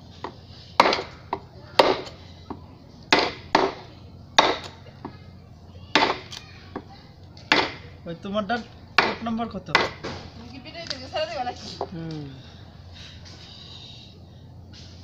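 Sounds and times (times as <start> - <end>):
chisel knocking into wood: 9.0 - 10.2.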